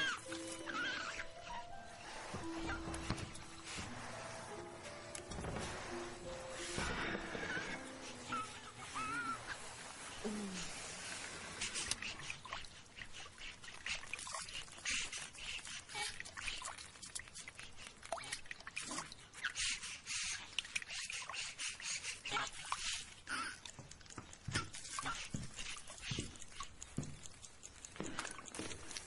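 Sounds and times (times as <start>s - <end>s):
small drips: 0.0s - 29.0s
wet clicks and crackles: 11.7s - 19.5s, 22.3s - 29.0s.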